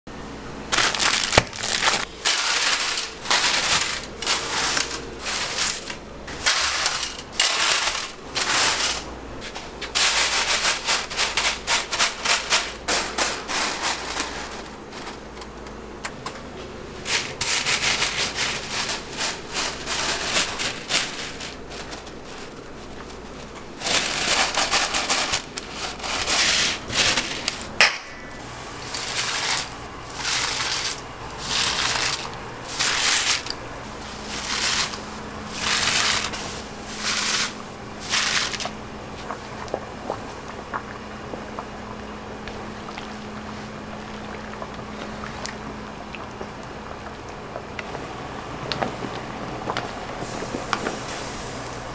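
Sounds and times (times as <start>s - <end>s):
dry spaghetti rattling on metal tray: 0.7s - 9.1s, 9.8s - 15.4s, 17.0s - 27.8s, 28.8s - 38.8s.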